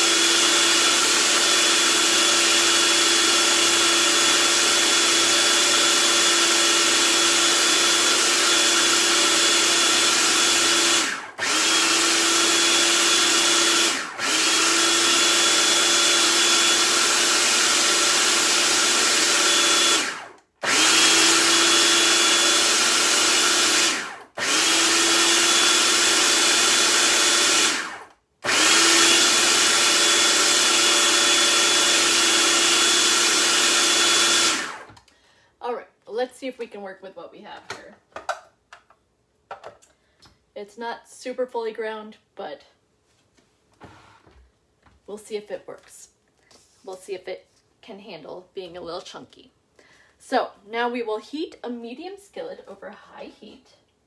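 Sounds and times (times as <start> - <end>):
food processor motor whining: 0.0 - 35.2.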